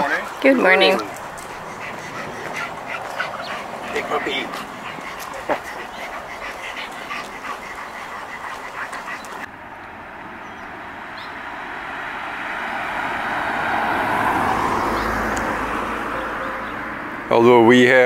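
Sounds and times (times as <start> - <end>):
broad rushing noise: 0.0 - 15.7.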